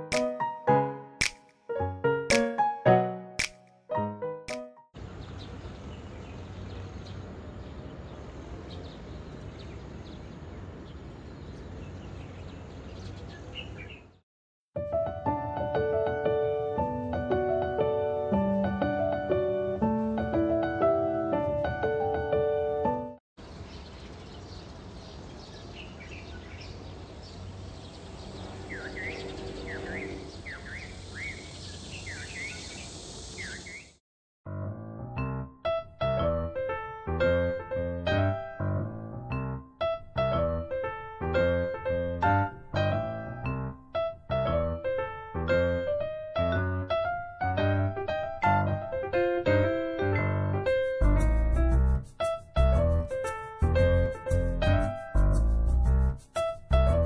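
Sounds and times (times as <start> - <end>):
bird chirping: 5.0 - 14.2, 23.4 - 34.0
distant road traffic rumble: 5.0 - 14.2, 23.4 - 33.8
faint bird chirps: 28.7 - 34.0.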